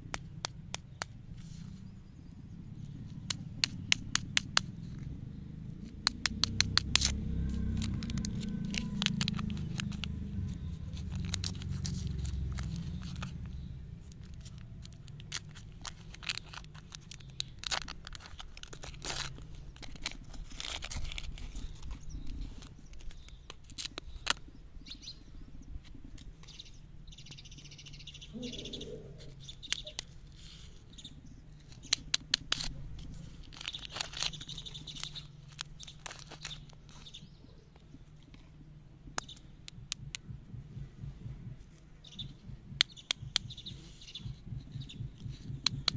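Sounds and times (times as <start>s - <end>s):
low rumble: 1.1s - 16.8s, 38.3s - 45.9s
wrapper crinkling and tearing: 7.0s - 13.3s, 14.0s - 24.4s, 31.6s - 37.2s.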